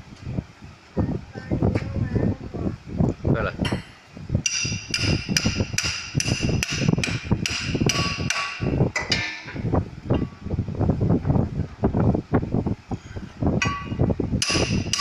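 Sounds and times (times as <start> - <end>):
hammer striking steel wrench: 4.4 - 9.6, 13.6 - 15.0
wrench knocking against flywheel: 4.4 - 9.6, 13.6 - 15.0.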